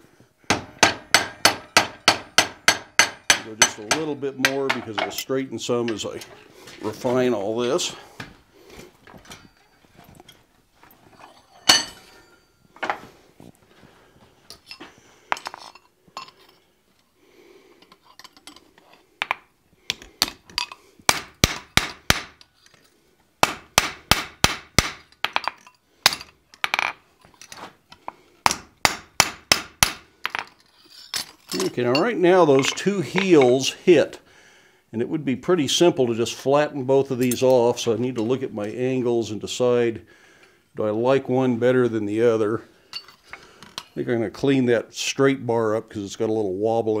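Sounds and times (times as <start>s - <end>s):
hammer striking steel on anvil: 0.5s - 5.2s
metal tools clinking: 9.1s - 13.1s, 14.5s - 16.7s, 17.8s - 19.0s, 20.3s - 20.9s, 25.1s - 27.7s, 30.3s - 33.7s, 37.1s - 37.6s, 42.9s - 44.0s.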